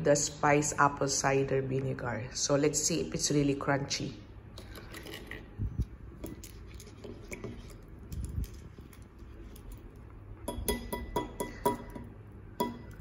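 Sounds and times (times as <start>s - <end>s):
clinks against ceramic bowl: 10.5s - 13.0s.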